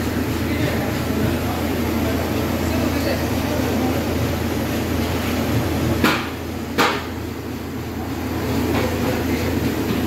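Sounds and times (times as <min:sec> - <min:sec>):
gas burners rumbling: 0:00.0 - 0:10.0
sharp knocks: 0:06.0 - 0:07.1.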